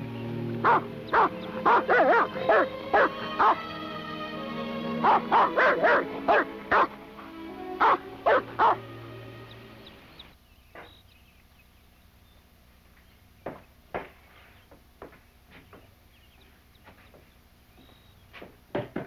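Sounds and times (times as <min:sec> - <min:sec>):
film score music: 0:00.0 - 0:10.3
large dog barking: 0:00.6 - 0:03.6, 0:05.0 - 0:07.0, 0:07.8 - 0:08.8.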